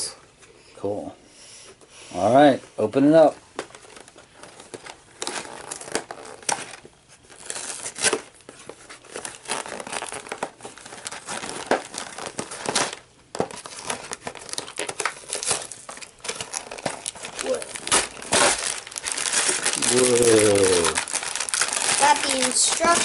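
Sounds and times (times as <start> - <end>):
cardboard box tearing and crinkling: 4.7 - 23.0.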